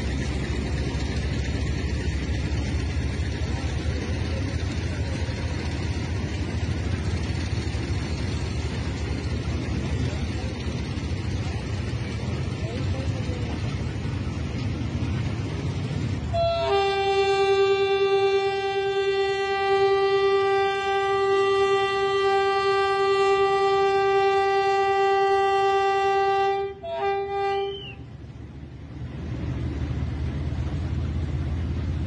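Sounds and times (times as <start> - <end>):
train rumble: 0.0 - 32.0
locomotive horn blast: 16.3 - 28.0.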